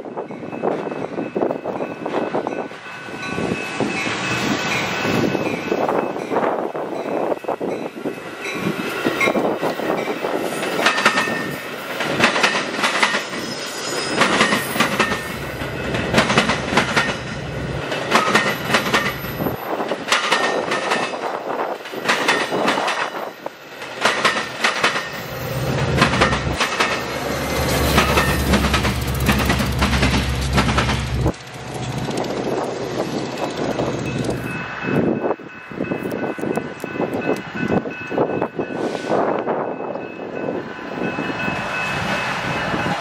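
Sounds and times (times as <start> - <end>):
diesel locomotive drone: 0.0 - 43.0
train wheels clacking over rail joints: 8.6 - 13.4, 14.1 - 34.5.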